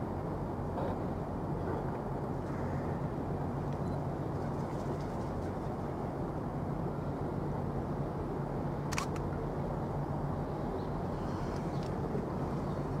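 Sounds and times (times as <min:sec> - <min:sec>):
sharp click: 0:08.9 - 0:09.3.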